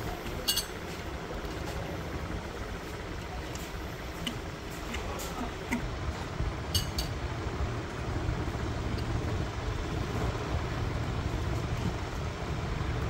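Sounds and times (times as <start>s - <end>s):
steady low rumble: 0.0s - 13.0s
ringing clink: 6.8s - 7.1s.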